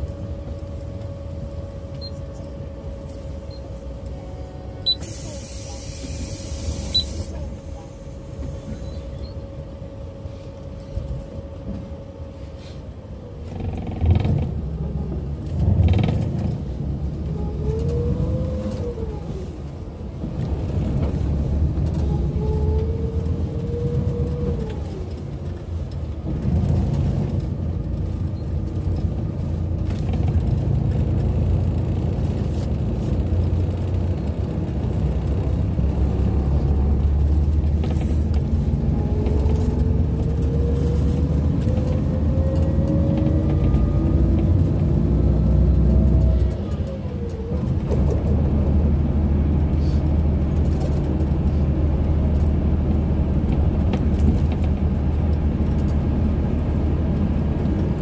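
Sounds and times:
bus engine and road rumble: 0.0s - 58.0s
creaks: 13.4s - 14.7s, 15.5s - 16.6s.

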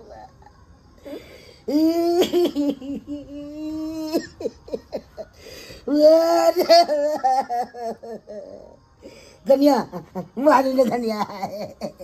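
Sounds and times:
man wailing and sobbing: 1.7s - 8.8s.

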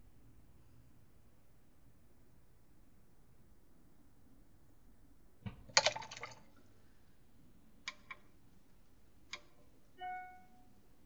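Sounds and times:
brush tapping water pot: 5.6s - 6.4s.

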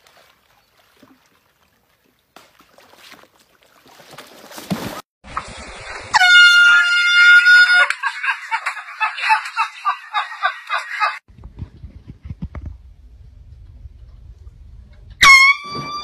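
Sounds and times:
water splashing: 0.0s - 7.6s
air horn blast: 6.1s - 7.8s, 15.2s - 16.0s
short pulsing honks: 6.1s - 7.8s, 15.2s - 16.0s.

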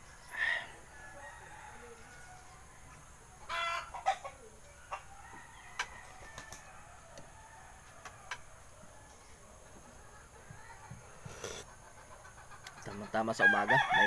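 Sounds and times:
chicken clucking: 2.3s - 6.2s, 9.2s - 13.4s.

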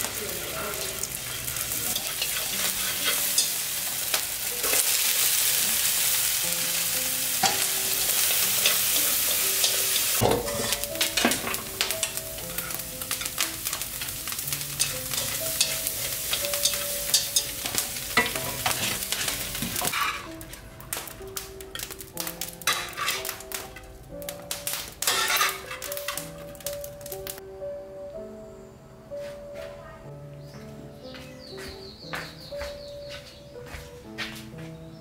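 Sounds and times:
food sizzling in a frying pan: 0.0s - 27.4s
utensil scraping a pan: 0.4s - 4.9s, 7.4s - 20.7s, 22.6s - 23.6s, 25.0s - 26.4s.

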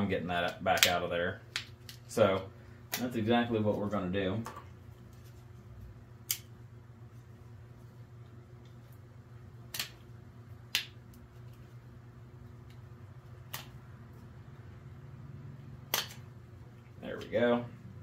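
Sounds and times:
steady low hum: 0.0s - 18.0s
wire cutters snipping: 15.9s - 16.3s.

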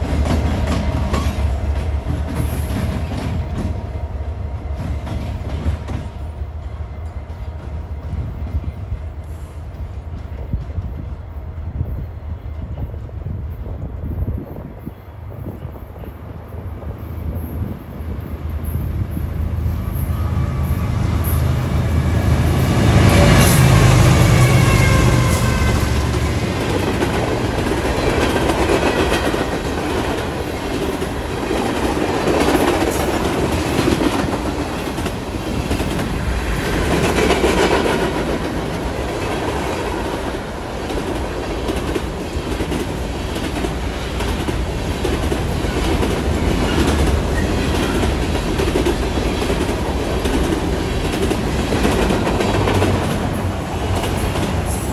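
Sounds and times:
diesel locomotives passing: 0.0s - 54.9s
train wheels clattering over rail joints: 26.0s - 54.9s.

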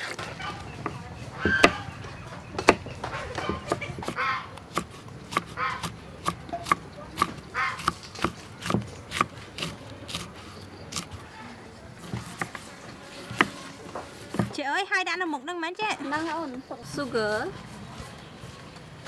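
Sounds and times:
knife chopping on wooden block: 0.5s - 10.3s, 12.0s - 14.6s
faint voices: 8.6s - 14.6s.

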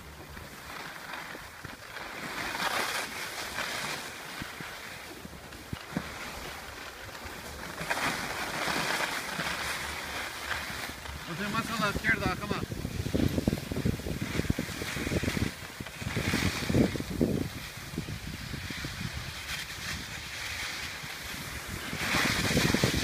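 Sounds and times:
skis scraping over snow: 0.0s - 23.0s
wind buffeting microphone: 10.7s - 23.0s.

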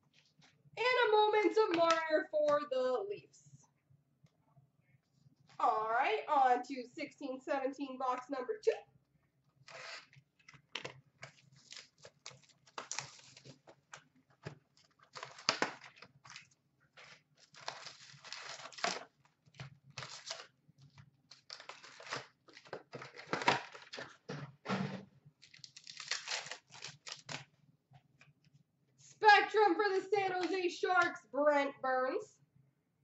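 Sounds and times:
packaging ripping and rustling: 10.8s - 13.8s, 14.8s - 24.2s, 25.4s - 27.5s.

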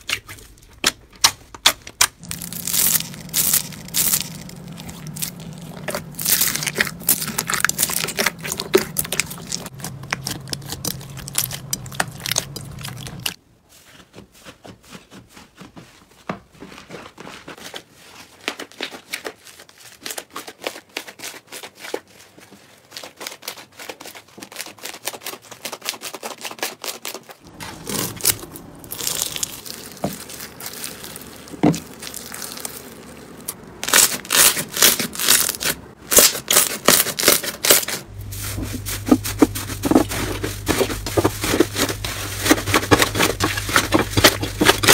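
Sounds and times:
slime crunching and crackling: 0.0s - 13.4s, 22.9s - 44.9s.

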